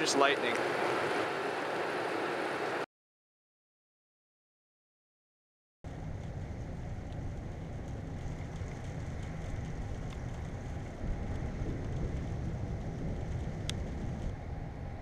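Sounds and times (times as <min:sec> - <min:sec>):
raindrops ticking on camera: 0:05.9 - 0:14.3
wind and rain rumble: 0:05.9 - 0:15.0.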